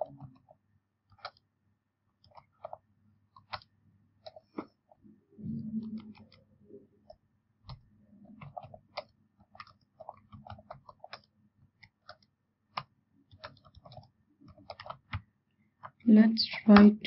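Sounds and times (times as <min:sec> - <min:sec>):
computer keyboard typing: 0:01.1 - 0:01.4, 0:03.4 - 0:04.4, 0:05.8 - 0:06.4, 0:07.7 - 0:17.0.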